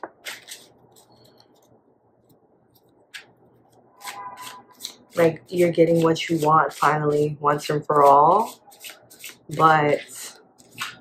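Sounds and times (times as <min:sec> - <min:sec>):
cards being shuffled: 0:00.0 - 0:01.7, 0:08.0 - 0:09.7, 0:10.6 - 0:11.0.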